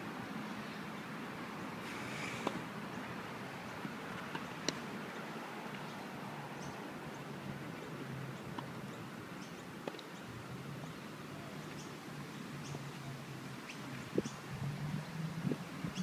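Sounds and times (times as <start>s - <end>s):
tennis ball taps: 4.2s - 4.8s, 8.5s - 8.8s, 9.8s - 10.1s.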